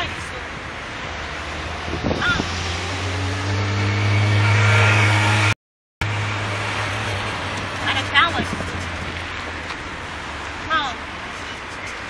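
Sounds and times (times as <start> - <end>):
vehicle engine passing: 0.9 - 10.2.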